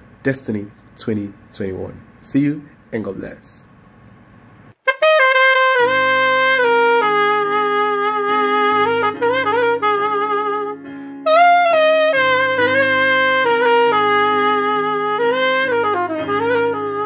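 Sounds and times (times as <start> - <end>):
alto saxophone melody: 4.8 - 17.0
sustained backing chord: 7.0 - 17.0.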